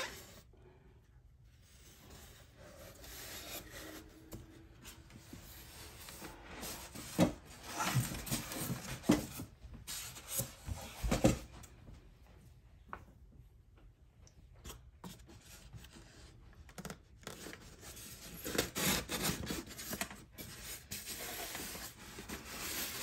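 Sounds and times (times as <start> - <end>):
styrofoam and cardboard rubbing: 1.6 - 11.2, 17.3 - 23.0.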